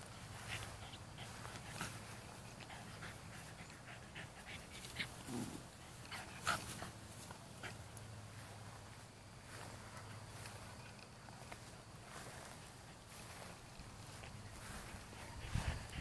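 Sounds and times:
rustling in dry grass: 4.6 - 16.0.

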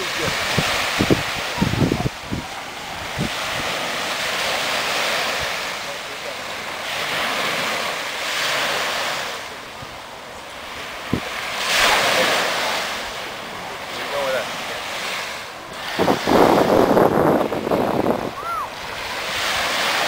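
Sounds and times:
wind buffeting microphone: 0.0 - 5.7, 9.7 - 13.6, 14.7 - 20.0
surf washing up the shore: 0.0 - 20.0.

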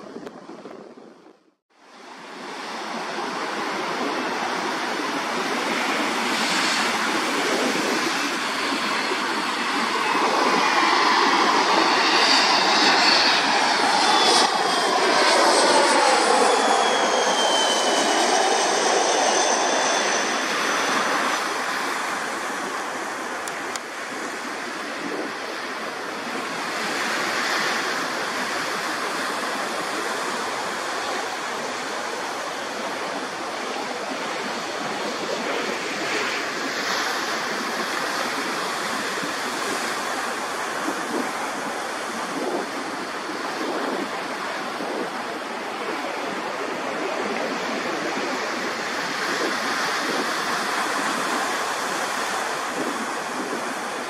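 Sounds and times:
jet engines roaring on landing: 0.0 - 54.0
falling engine whine: 2.6 - 23.5.

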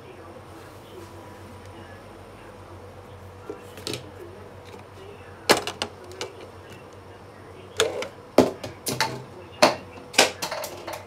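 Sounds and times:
plastic housing clicking and knocking: 5.5 - 6.5.

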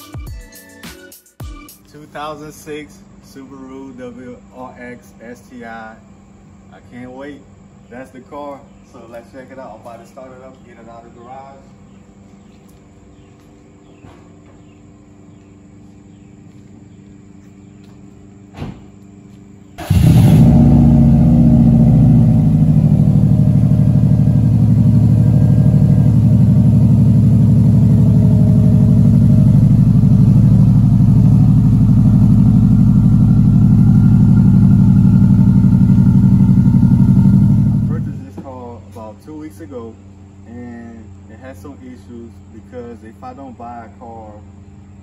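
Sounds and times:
car engine starting and idling: 19.8 - 38.4.

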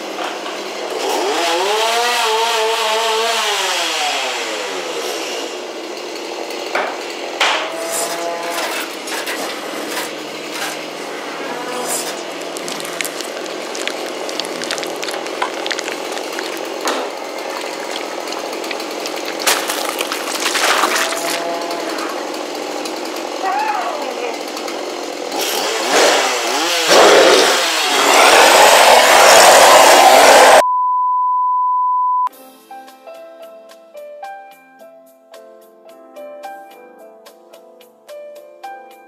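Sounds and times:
steady grinding noise: 7.7 - 30.6
drawn-out cry: 21.0 - 22.5.

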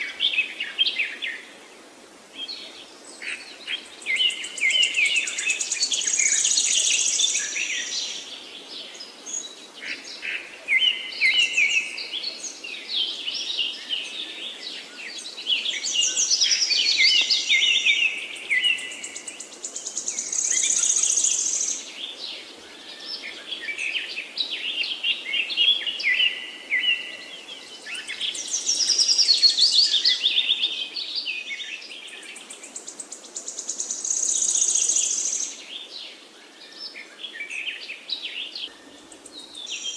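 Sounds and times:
birds chirping and trilling: 2.4 - 39.9.

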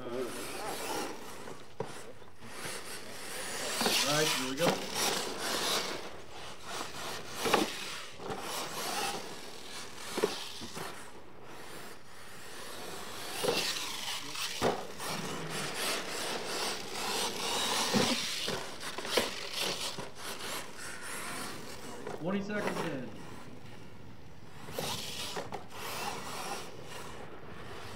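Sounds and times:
toy truck tyres scrabbling on dirt: 0.0 - 27.9.

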